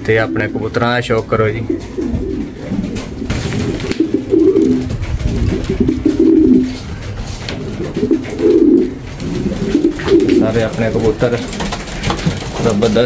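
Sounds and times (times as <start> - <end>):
pigeons cooing: 0.0 - 13.0.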